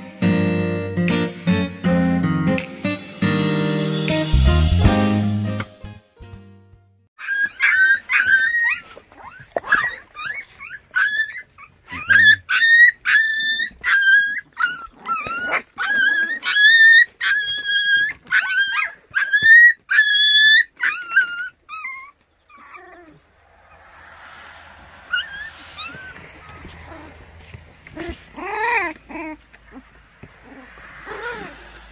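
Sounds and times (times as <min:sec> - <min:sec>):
puppies whining and yelping: 0:07.2 - 0:31.9.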